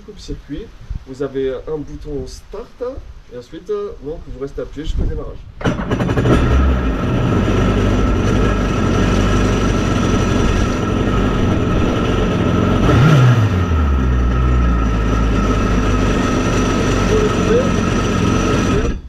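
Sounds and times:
jet ski engine idling and revving: 5.6s - 19.0s.

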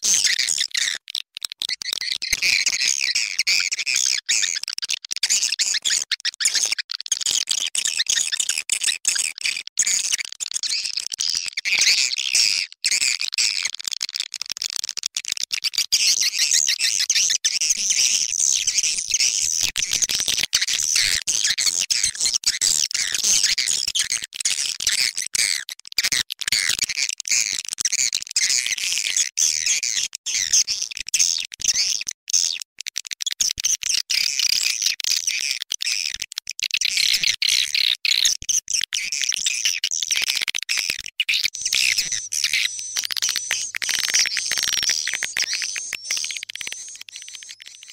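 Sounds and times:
swiftlets twittering chirps: 41.5s - 47.9s.

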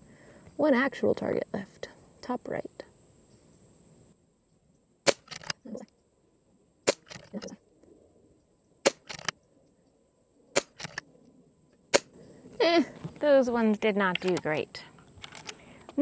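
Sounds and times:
air rifle shots: 5.0s - 5.5s, 6.8s - 7.3s, 8.8s - 9.3s, 10.5s - 11.0s, 11.9s - 12.2s.

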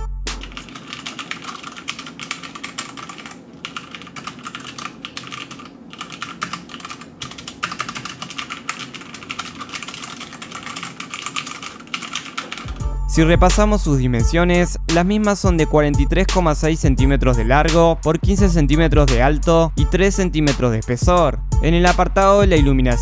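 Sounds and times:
fast typing on mechanical keyboard: 0.4s - 12.8s.

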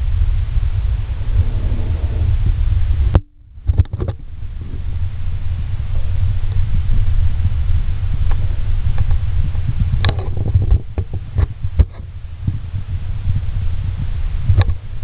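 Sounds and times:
camera handling rumble: 1.4s - 4.3s, 8.2s - 12.6s
sharp clicks and knocks: 3.1s - 4.2s.

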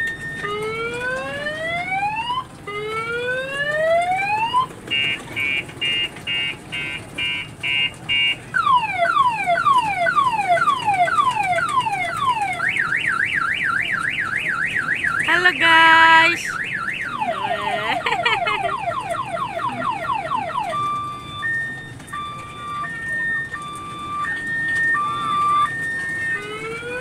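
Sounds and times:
electronic siren cycling tones: 16.6s - 27.0s.

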